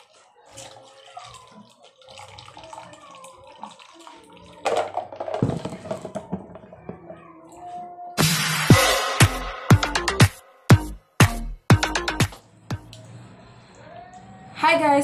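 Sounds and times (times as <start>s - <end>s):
eating sounds: 0.0s - 4.6s
drink pouring into a paper cup: 0.0s - 5.4s.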